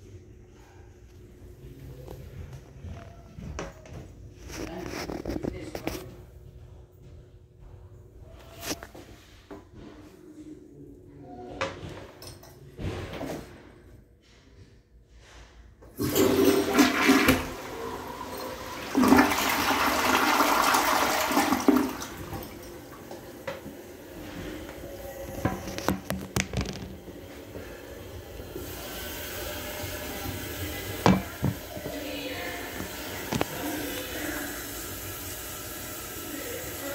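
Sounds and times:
toilet flushing: 15.9s - 36.9s
water running: 16.0s - 36.9s.

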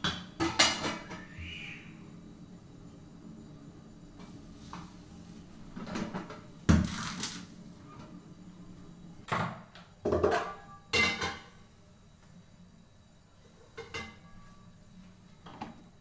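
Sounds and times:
metal pots and lids clanking: 10.1s - 11.5s.

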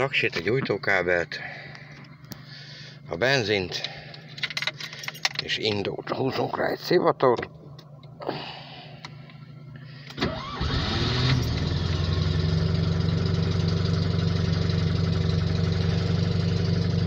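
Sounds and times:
car engine cranking and idling: 9.0s - 17.0s.

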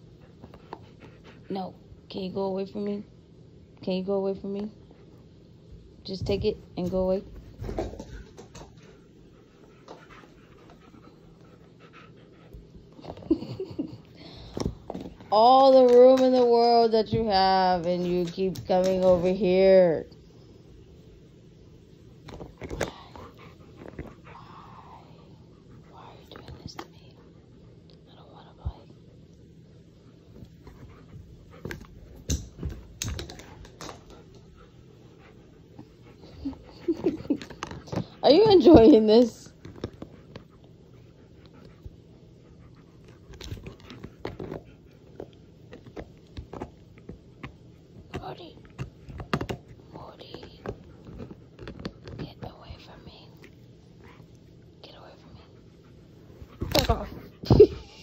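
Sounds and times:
dog panting: 0.0s - 2.1s, 7.8s - 13.3s, 23.0s - 27.9s, 33.3s - 48.9s, 53.9s - 58.0s
dog chewing rubber toy: 43.1s - 49.8s.

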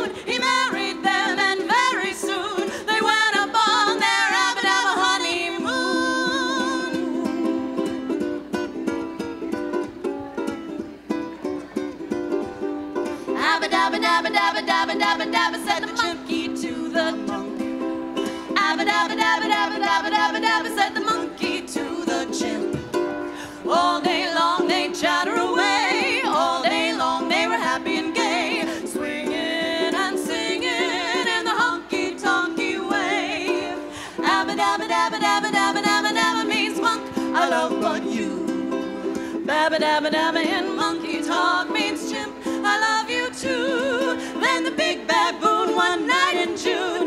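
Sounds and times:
women singing: 0.0s - 8.0s, 13.3s - 47.0s
ukulele strumming: 0.0s - 47.0s.

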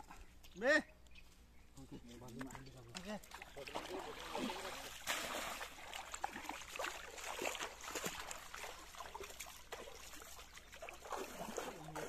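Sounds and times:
water splashing and sloshing: 1.8s - 12.0s.

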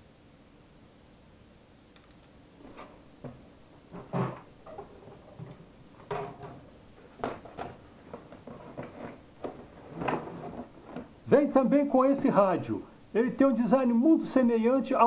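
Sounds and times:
cardboard box knocks and scrapes: 2.6s - 11.2s.

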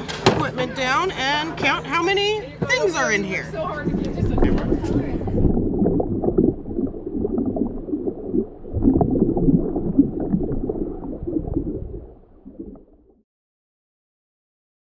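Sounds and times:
muffled underwater rush: 3.5s - 13.2s
bubbling gurgles: 3.8s - 13.2s.

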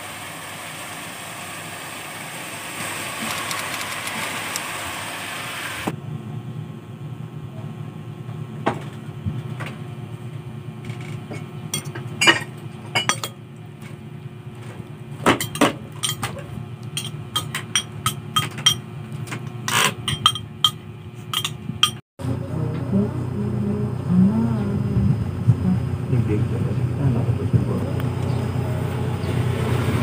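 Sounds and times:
low hum: 6.0s - 30.0s
spoon clinking on ceramic plate: 13.0s - 13.4s, 15.4s - 16.3s, 17.0s - 18.8s, 19.9s - 22.0s.

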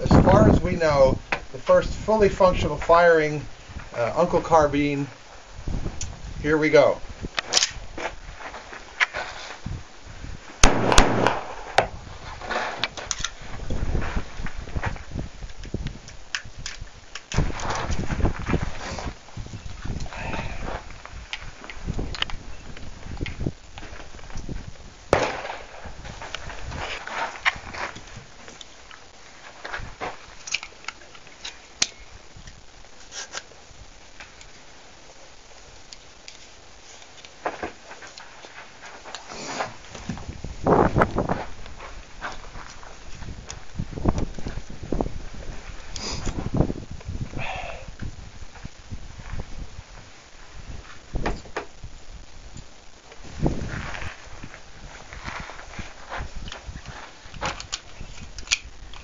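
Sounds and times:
gun handling clicks and knocks: 7.4s - 8.2s, 12.7s - 13.4s, 15.4s - 17.8s, 30.4s - 32.6s, 57.3s - 59.0s
gunshots: 10.6s - 12.0s, 25.1s - 25.9s.

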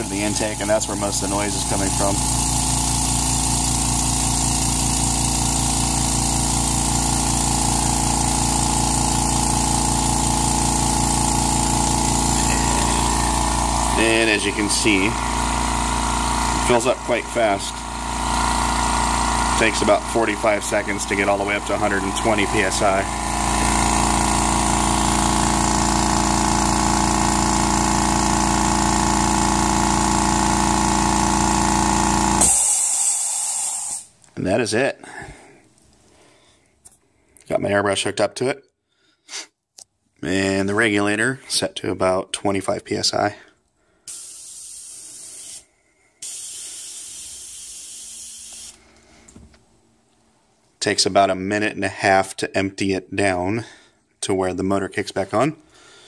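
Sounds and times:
air compressor running: 0.0s - 34.2s, 43.8s - 49.6s.

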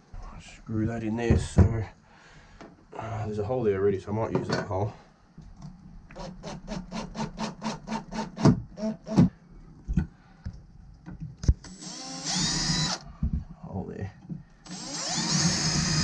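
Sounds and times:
cordless drill whining: 11.6s - 13.1s, 14.6s - 16.0s.

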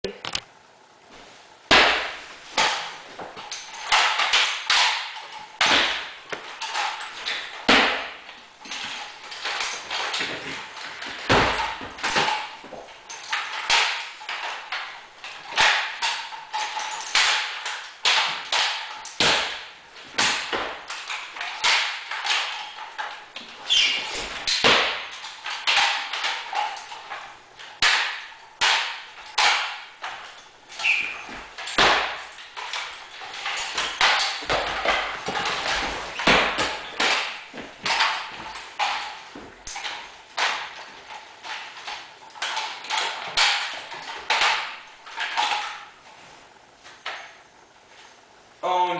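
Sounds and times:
rifle butts knocking floor: 1.7s - 27.2s, 27.8s - 45.8s
hands slapping wooden rifles: 1.7s - 46.0s.

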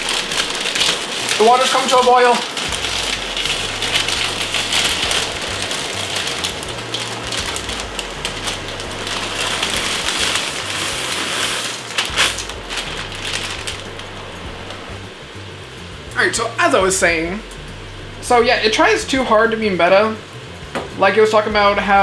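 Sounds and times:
water coming to a boil: 0.0s - 15.4s
pan sizzling: 0.0s - 21.4s.

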